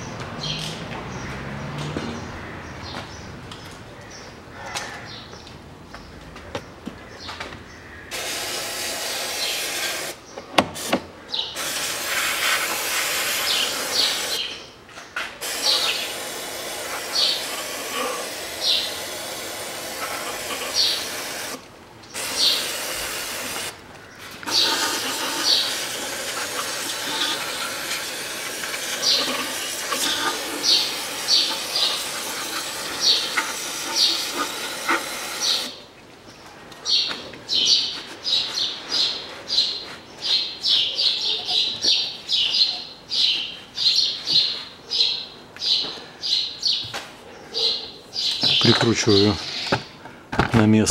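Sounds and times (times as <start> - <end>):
aerosol spray can hissing: 8.1 - 10.2, 11.6 - 14.4, 15.4 - 21.6, 22.2 - 23.7, 24.5 - 35.8.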